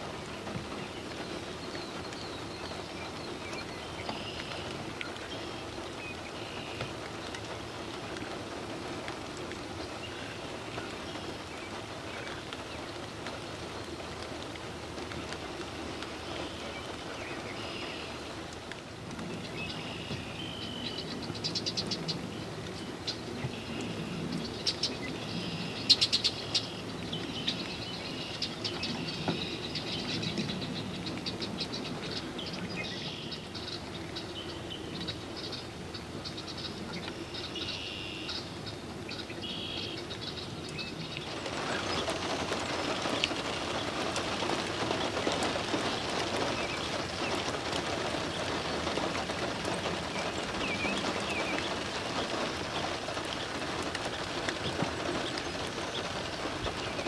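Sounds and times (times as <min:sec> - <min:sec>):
small birds chirping: 0:19.2 - 0:57.0.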